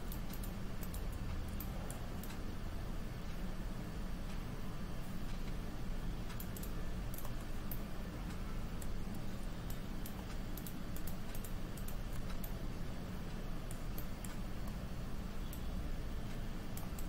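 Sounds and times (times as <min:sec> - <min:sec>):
computer mouse clicks: 0:00.0 - 0:02.4, 0:06.2 - 0:12.6, 0:13.6 - 0:14.8, 0:16.3 - 0:17.0
low room hum: 0:00.0 - 0:17.0.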